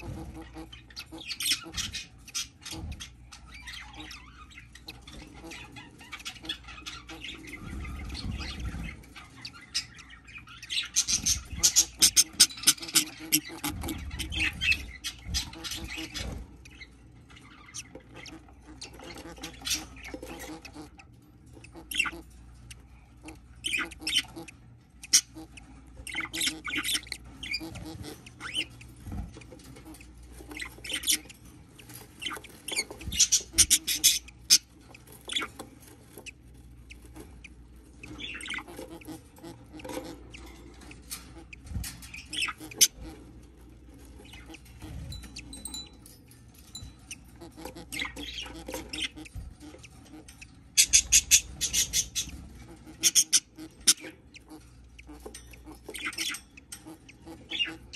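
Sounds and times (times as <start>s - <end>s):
budgerigar chirping and chattering: 0.0s - 57.9s.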